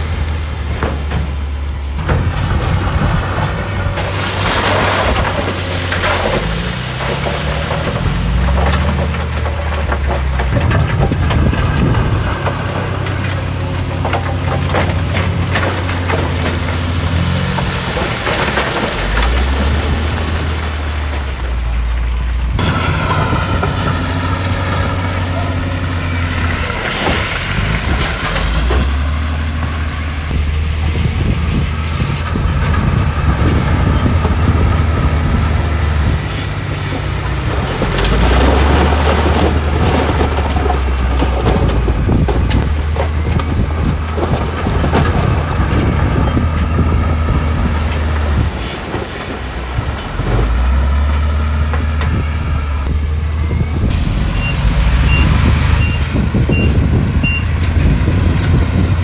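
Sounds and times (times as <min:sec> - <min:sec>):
heavy machinery diesel engine: 0:00.0 - 0:59.0
clattering: 0:02.0 - 0:19.9
reversing alarm beeping: 0:53.3 - 0:57.6.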